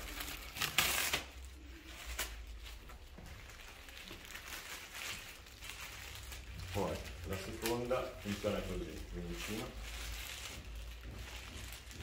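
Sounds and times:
plastic film rustling and crinkling: 0:00.0 - 0:12.0.

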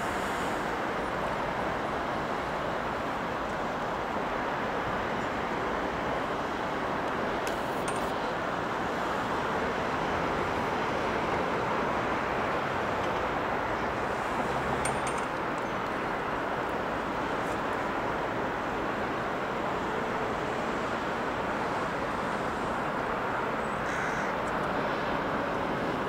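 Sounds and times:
airport hiss and rumble: 0:00.0 - 0:26.0.

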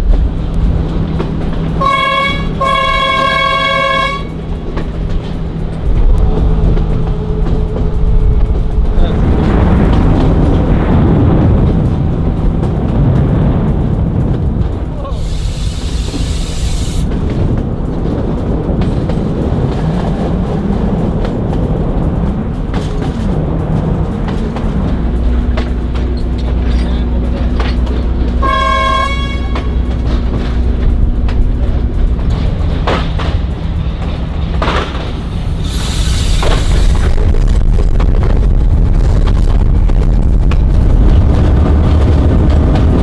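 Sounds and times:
diesel train rumbling: 0:00.0 - 0:43.0
wind: 0:00.0 - 0:43.0
train horn toot: 0:01.8 - 0:04.4, 0:28.4 - 0:30.0.

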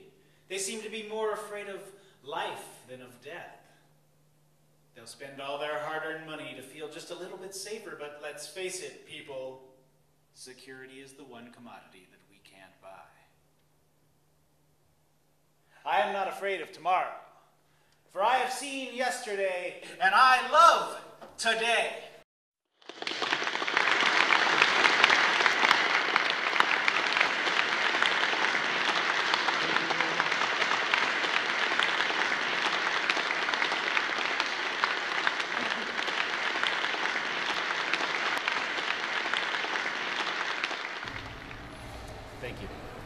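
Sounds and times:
audience applauding: 0:22.8 - 0:43.0.

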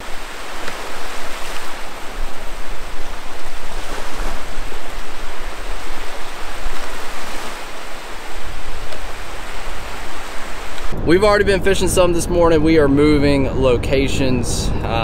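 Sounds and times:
small waves breaking on beach: 0:00.0 - 0:11.0.

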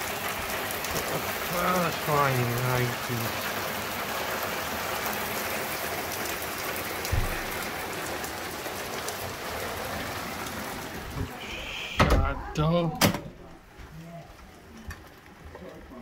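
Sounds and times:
heavy rain pouring: 0:00.0 - 0:16.0
dull bump: 0:07.1 - 0:07.5.

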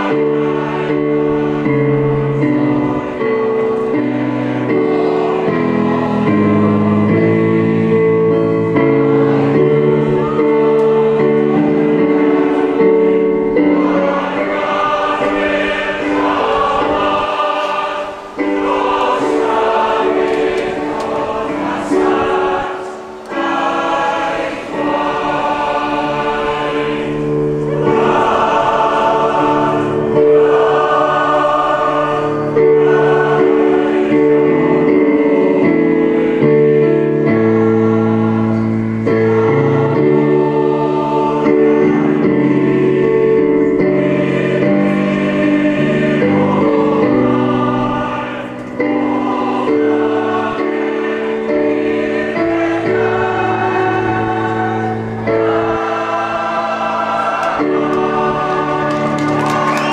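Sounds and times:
choir singing slow chords: 0:00.0 - 0:59.9.

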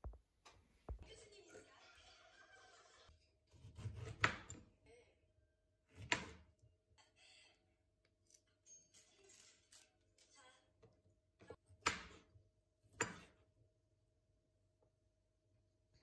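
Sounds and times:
orange being peeled: 0:07.9 - 0:10.4.

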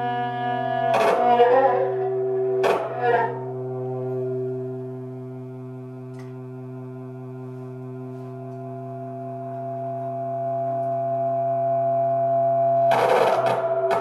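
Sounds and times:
low cello drone: 0:00.0 - 0:14.0.

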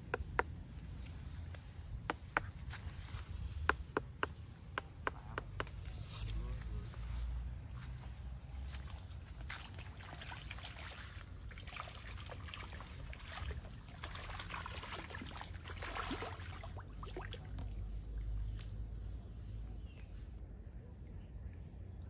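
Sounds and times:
water trickling and splashing: 0:07.0 - 0:19.1.

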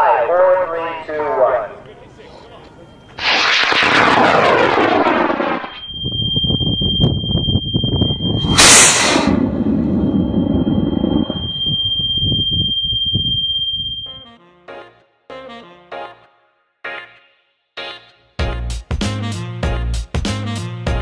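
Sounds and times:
rocket motor roaring: 0:03.2 - 0:06.6, 0:08.0 - 0:12.5
high-pitched beep tone: 0:05.6 - 0:14.3.

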